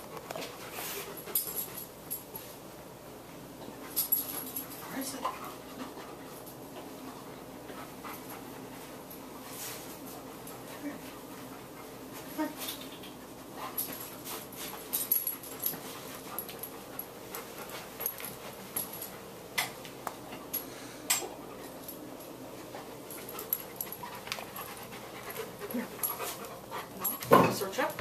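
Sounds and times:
large dog panting: 0:22.8 - 0:27.3.

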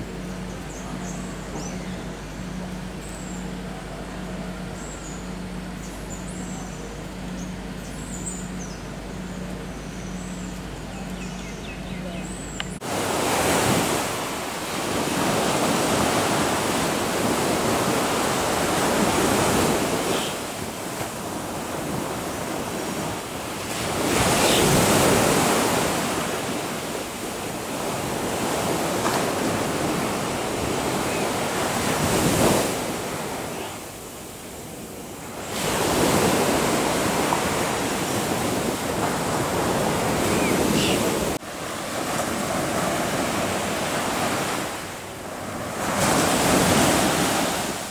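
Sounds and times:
surf washing onto a beach: 0:12.8 - 0:47.9.

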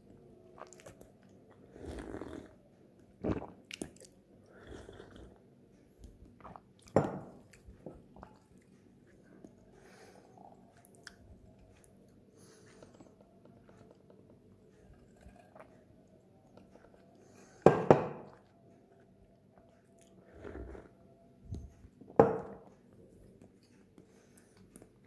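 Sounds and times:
cups knocking on wooden table: 0:17.7 - 0:18.3, 0:22.2 - 0:22.6.

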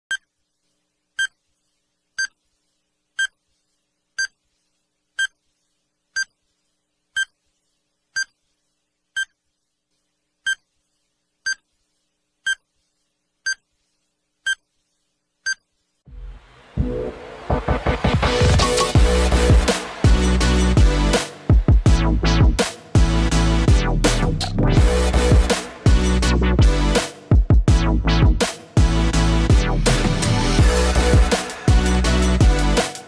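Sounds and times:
short electronic beeps: 0:07.2 - 0:07.4, 0:08.2 - 0:08.4, 0:15.4 - 0:15.6.

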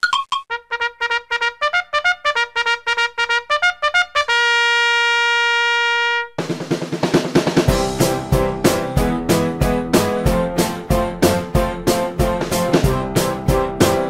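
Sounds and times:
drum beat: 0:06.4 - 0:14.0
upbeat intro music: 0:06.4 - 0:14.0.

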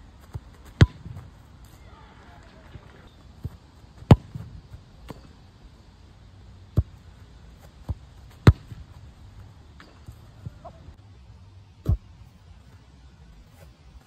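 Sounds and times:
football thudding on grass: 0:00.2 - 0:01.3, 0:03.4 - 0:05.2, 0:07.6 - 0:09.0, 0:11.8 - 0:12.2.

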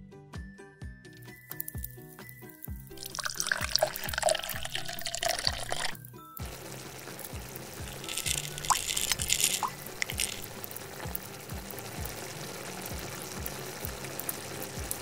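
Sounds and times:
background music with soft beat: 0:00.0 - 0:15.0
pearls splashing into water: 0:01.2 - 0:06.0, 0:07.8 - 0:10.6
water plops: 0:01.2 - 0:06.0, 0:07.8 - 0:11.2
steady water sound: 0:01.2 - 0:15.0.

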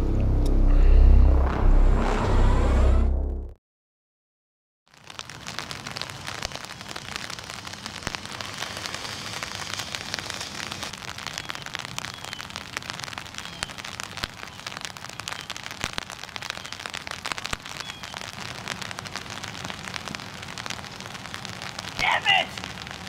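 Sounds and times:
light rain on wet ground: 0:04.9 - 0:23.0.

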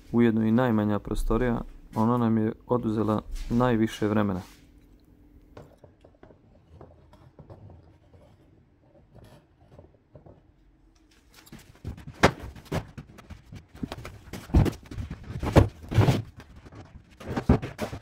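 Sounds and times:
objects scraping and rubbing: 0:06.2 - 0:10.5, 0:11.2 - 0:18.0.

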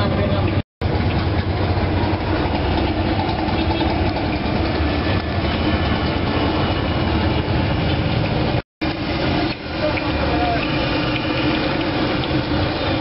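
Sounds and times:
hot oil bubbling and sizzling: 0:07.7 - 0:13.0.

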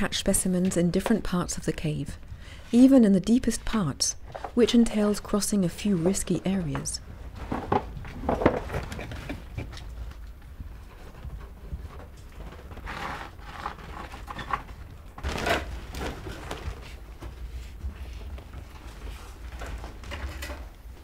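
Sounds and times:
rustling and light knocks: 0:06.1 - 0:21.0.

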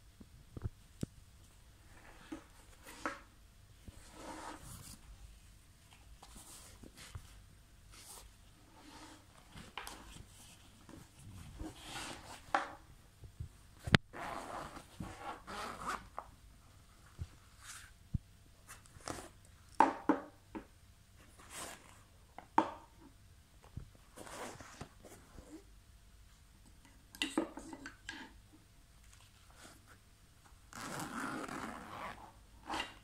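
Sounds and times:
zipping and fabric rustling: 0:14.1 - 0:16.2, 0:30.7 - 0:32.8.

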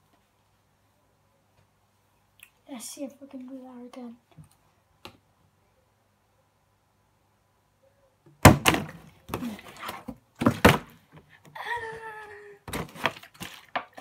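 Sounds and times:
child exclaiming: 0:11.6 - 0:12.6.

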